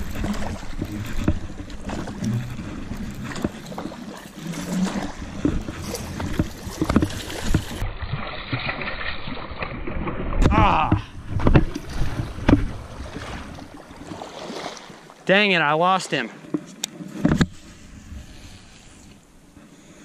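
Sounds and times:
wind rumbling on microphone: 0.0 - 14.2, 17.2 - 19.5
microphone handling noise: 10.4 - 13.3.

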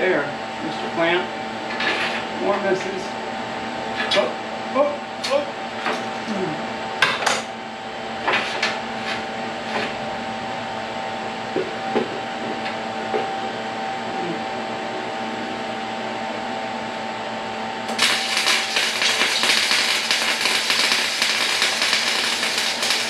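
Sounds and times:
steady hum: 0.0 - 23.0
welding arc crackling: 17.9 - 23.0.

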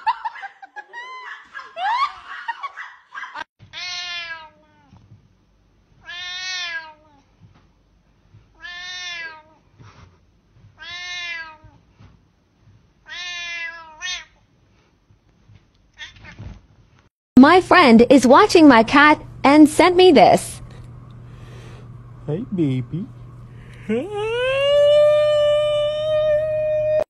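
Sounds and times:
cat meowing: 6.0 - 7.0, 13.1 - 14.3.

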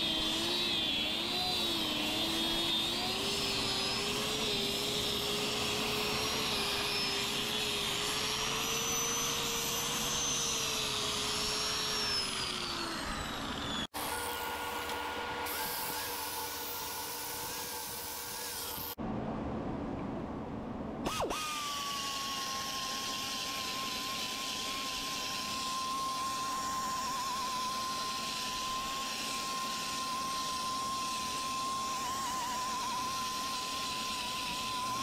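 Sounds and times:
electric sander motor whine: 0.0 - 19.0, 21.0 - 35.0
wood lathe humming: 0.0 - 19.0, 21.1 - 35.0.

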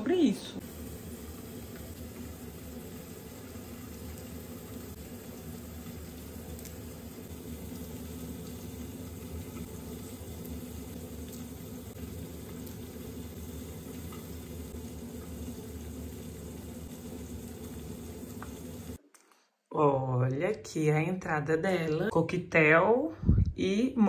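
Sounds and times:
fish sizzling in a pan: 0.6 - 19.0.

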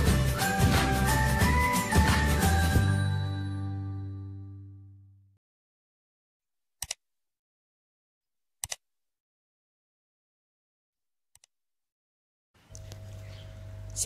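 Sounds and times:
music jingle: 0.0 - 5.2.

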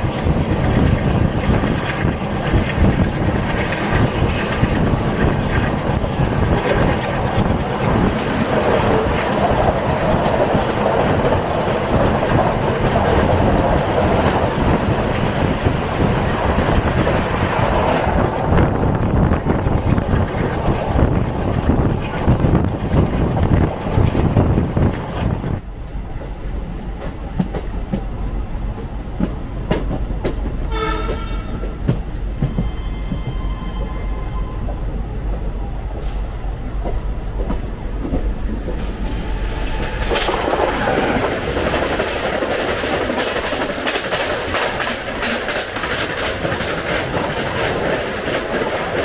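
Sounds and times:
wind buffeting: 0.0 - 30.8, 31.4 - 49.0
passing train roar and clickety-clack: 0.0 - 49.0
train wheels on rail: 0.0 - 49.0
train horn blast: 30.7 - 31.8.

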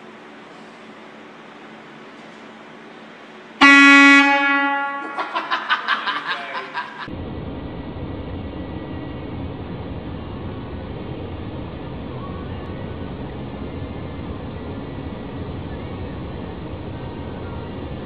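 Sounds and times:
loud air horn blast: 3.6 - 5.3
steady rushing noise: 7.0 - 18.0
rapid loud pulsing: 7.1 - 18.0.

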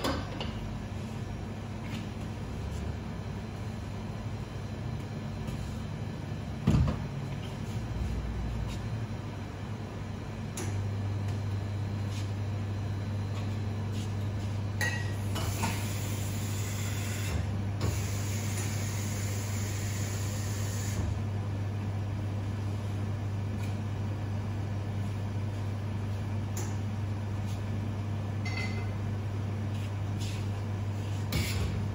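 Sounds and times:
espresso machine pump humming: 14.8 - 21.1.

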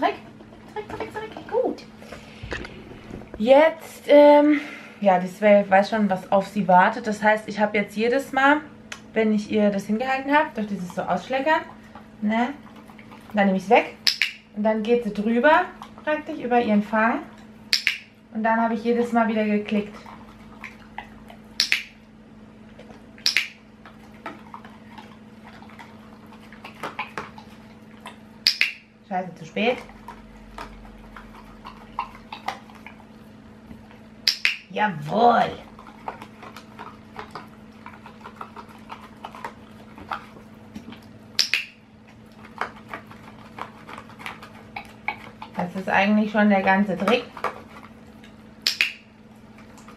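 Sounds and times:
dog licking: 9.8 - 17.8, 19.0 - 22.0, 22.7 - 28.7, 29.6 - 49.9.

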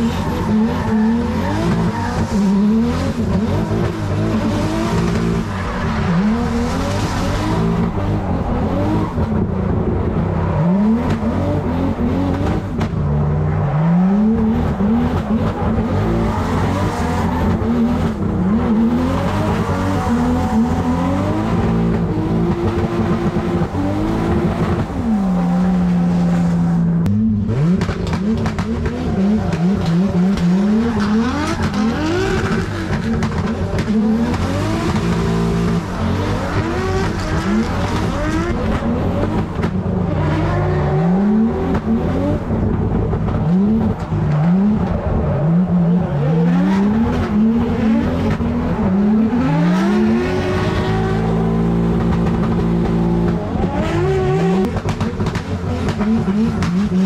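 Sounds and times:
car engine revving: 0.0 - 57.0
exhaust and tyre noise: 0.0 - 57.0.

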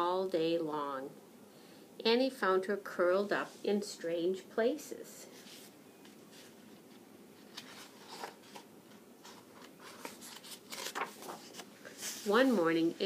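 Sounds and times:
book pages rustling and turning: 5.4 - 13.0.

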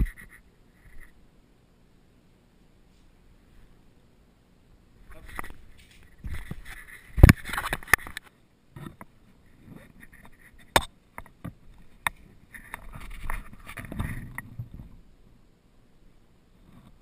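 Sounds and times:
camera housing rubbing: 6.1 - 8.2.

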